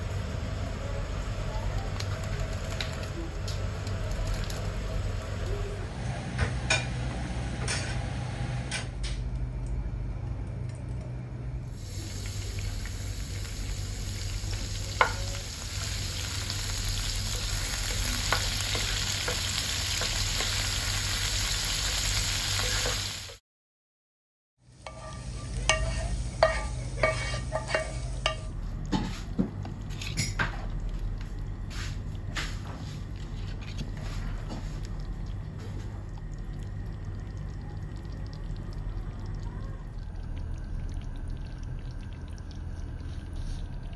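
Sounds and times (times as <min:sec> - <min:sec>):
herbs sizzling in oil: 0:11.7 - 0:23.4, 0:24.6 - 0:28.6
wooden spoon stirring in pot: 0:24.8 - 0:28.4, 0:31.8 - 0:35.0.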